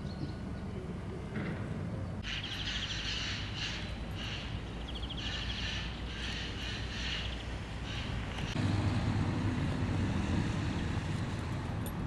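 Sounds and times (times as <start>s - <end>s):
songbirds trilling: 0.0s - 8.7s.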